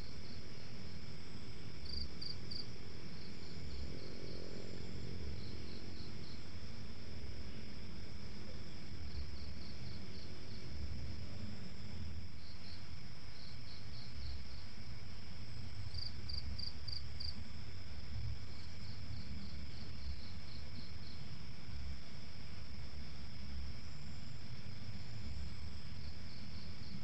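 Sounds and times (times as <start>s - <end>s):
crickets chirping: 0.0s - 27.0s.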